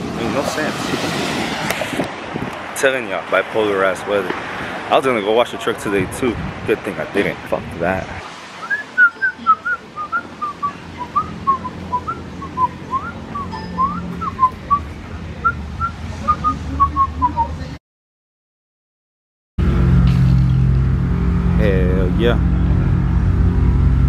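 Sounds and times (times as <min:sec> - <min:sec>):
person whistling a tune: 0:08.6 - 0:14.9.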